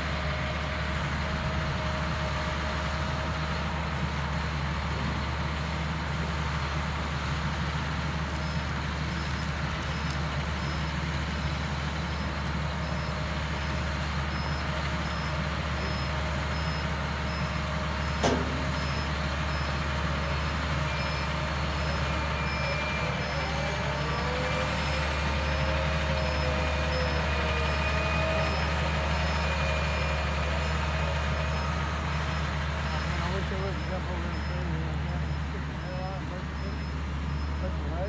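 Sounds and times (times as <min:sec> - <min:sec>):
heavy diesel engine running: 0:00.0 - 0:38.0
high-pitched backup alarm beeping: 0:09.2 - 0:38.0
sharp metal clank: 0:18.2 - 0:18.9.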